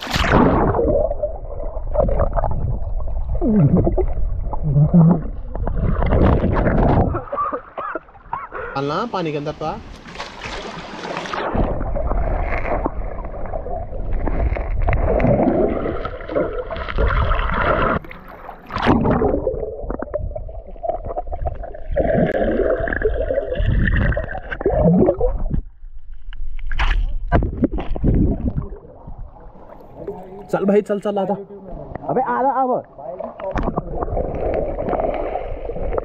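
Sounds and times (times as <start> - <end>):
muffled underwater stream bubbling: 0.0 - 8.7, 10.4 - 30.8, 32.8 - 36.0
water splashes: 0.0 - 31.1, 31.8 - 36.0.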